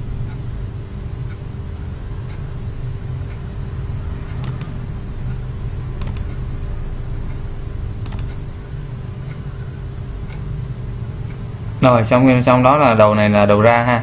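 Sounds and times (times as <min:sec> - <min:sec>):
steady low hum: 0:00.0 - 0:14.0
computer mouse clicks: 0:04.2 - 0:04.8, 0:06.0 - 0:06.4, 0:08.0 - 0:08.4.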